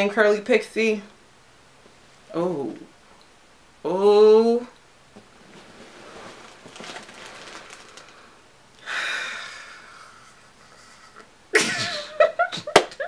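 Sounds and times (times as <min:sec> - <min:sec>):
small rustles: 0:05.1 - 0:08.4
person breathing quietly: 0:07.5 - 0:11.3
long breathy exhale: 0:08.8 - 0:10.2.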